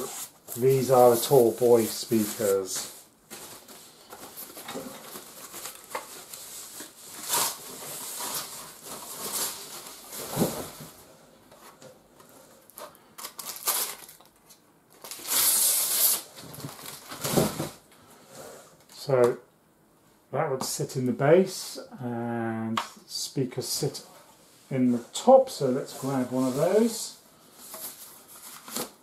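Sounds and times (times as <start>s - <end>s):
plastic wrapping crinkling: 0.1s - 10.9s, 12.7s - 17.6s.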